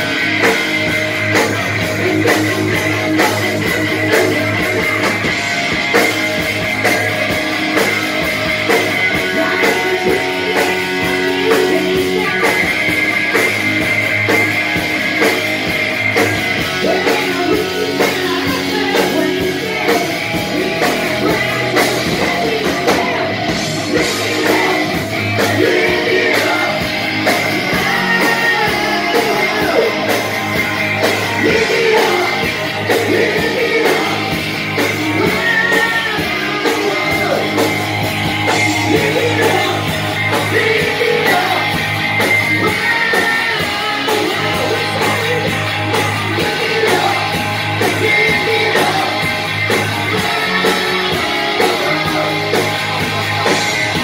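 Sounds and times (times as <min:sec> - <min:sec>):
rock band playing: 0:00.0 - 0:54.0
person singing: 0:08.6 - 0:13.5, 0:16.2 - 0:54.0.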